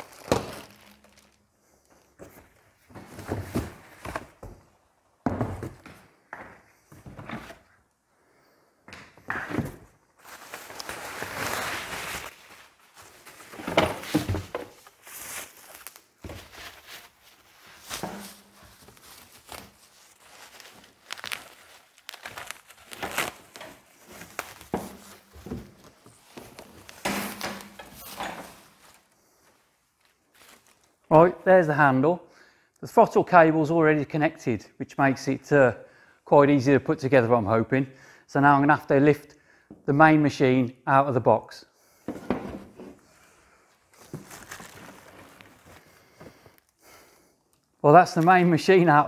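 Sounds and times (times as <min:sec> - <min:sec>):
plastic wrapping crinkling: 0:00.0 - 0:02.2, 0:10.2 - 0:13.5, 0:14.1 - 0:31.0, 0:43.8 - 0:46.8
metal frame knocks and thunks: 0:42.1 - 0:43.0.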